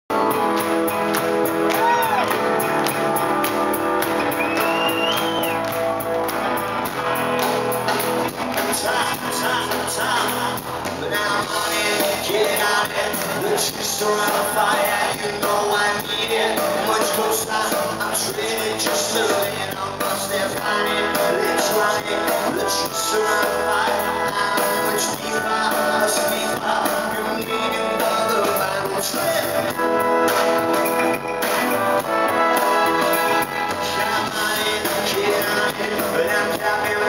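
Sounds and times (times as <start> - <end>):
live rock band playing: 0.1 - 37.0
crowd whistling and shouting: 0.2 - 2.8, 3.6 - 6.7
person singing into microphone: 8.3 - 30.6, 32.1 - 37.0.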